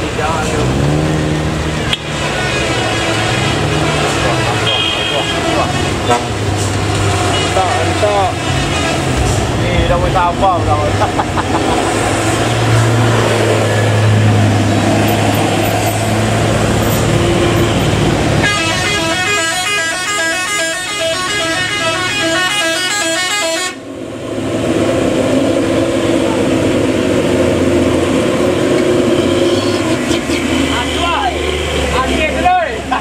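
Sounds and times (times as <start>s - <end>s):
diesel engines running: 0.0s - 33.0s
multi-tone vehicle horn: 2.0s - 6.5s, 7.2s - 9.4s, 16.8s - 23.9s, 29.1s - 32.1s.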